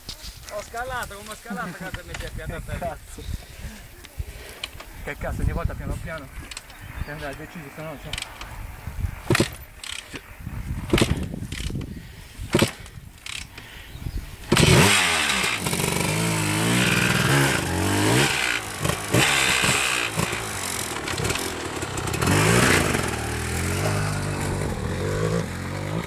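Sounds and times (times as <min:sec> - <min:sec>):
rear wheel spinning in dirt: 0:08.0 - 0:13.6, 0:14.4 - 0:26.0
dirt bike engine revving: 0:14.4 - 0:26.0.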